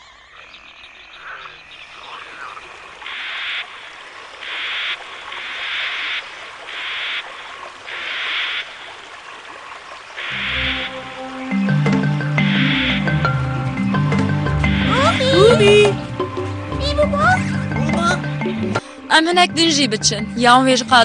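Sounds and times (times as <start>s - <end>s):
frogs croaking: 0.0s - 16.8s
faint jungle pond ambience: 0.0s - 21.0s.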